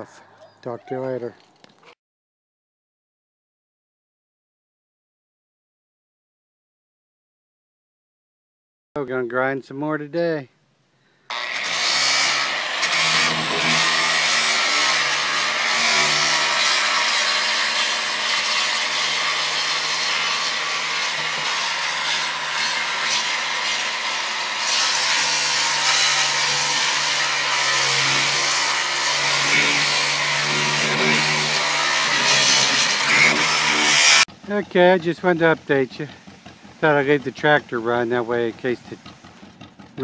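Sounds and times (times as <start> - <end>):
angle grinder sanding fiberglass: 11.3 - 40.0
tractor engine running: 34.3 - 40.0.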